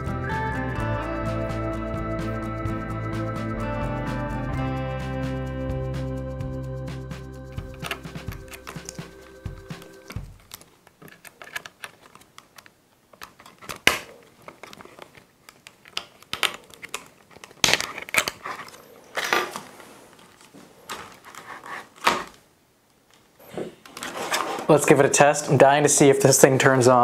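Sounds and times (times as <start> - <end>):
plastic parts clicking and knocking: 10.1 - 19.6
sharp plastic clacks: 10.1 - 19.6.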